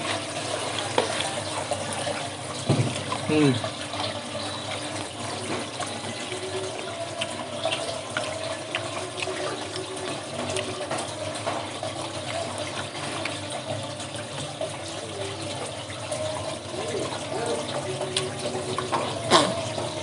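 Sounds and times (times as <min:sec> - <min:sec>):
running water: 0:00.0 - 0:20.0.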